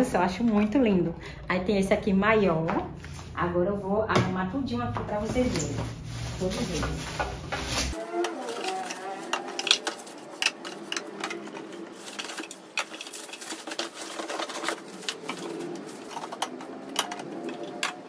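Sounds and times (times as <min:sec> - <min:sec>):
plastic wrapping rustling: 0:05.2 - 0:18.0
plastic containers clicking: 0:06.7 - 0:18.0.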